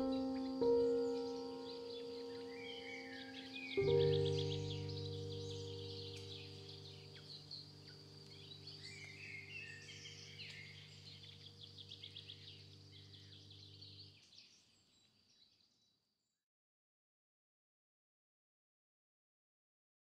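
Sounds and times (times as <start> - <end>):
birds chirping and trilling: 0.0 - 16.0.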